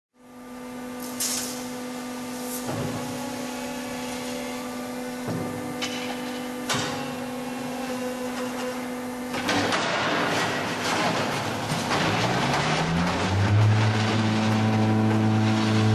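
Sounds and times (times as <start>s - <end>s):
machine humming: 0.2s - 15.9s
machine clunks: 5.2s - 7.2s, 8.4s - 15.6s.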